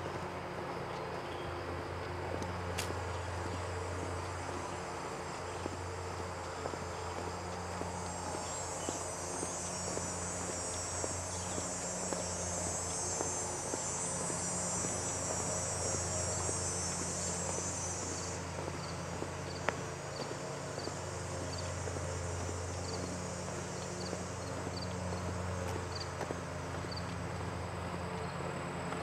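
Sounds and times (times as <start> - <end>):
insect buzzing: 6.9 - 21.7.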